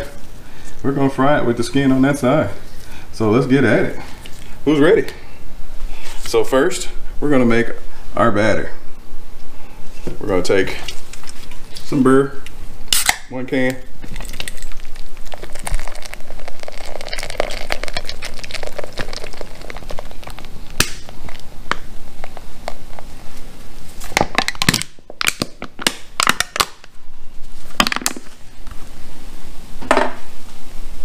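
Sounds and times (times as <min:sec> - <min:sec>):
beer splashing and fizzing: 0:14.0 - 0:20.4
can clicking and crinkling: 0:14.0 - 0:22.8, 0:24.2 - 0:26.8.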